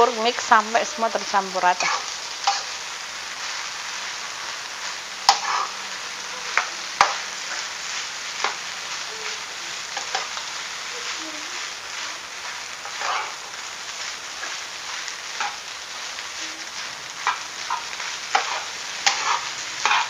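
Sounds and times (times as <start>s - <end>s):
food sizzling in a wok: 0.0s - 20.0s
metal spatula scraping: 1.0s - 2.8s, 5.2s - 20.0s
spatula clicking against pan: 6.6s - 7.2s.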